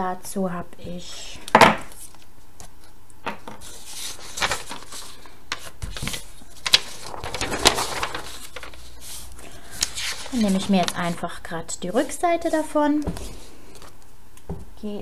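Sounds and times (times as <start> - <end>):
paper rustling: 3.6 - 14.0.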